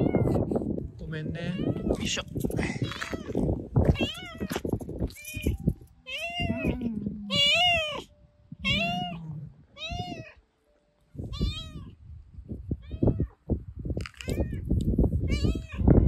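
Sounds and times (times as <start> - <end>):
cat meowing: 0.0 - 0.4, 6.1 - 10.4, 11.3 - 12.0, 15.3 - 15.9.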